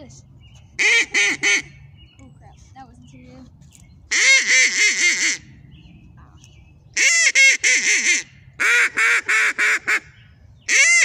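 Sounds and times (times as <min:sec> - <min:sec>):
duck call quacks: 0:00.8 - 0:01.7, 0:04.1 - 0:05.4, 0:07.0 - 0:10.1, 0:10.7 - 0:11.0.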